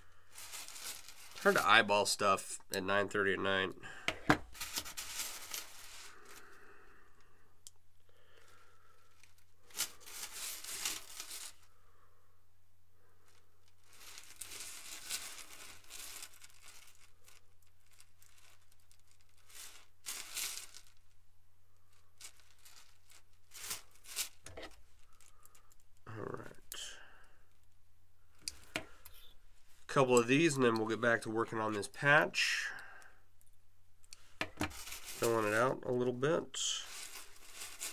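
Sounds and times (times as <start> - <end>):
plastic bags crinkling: 0.0 - 2.2, 4.3 - 6.8, 8.2 - 11.8, 13.2 - 27.7, 34.0 - 37.9.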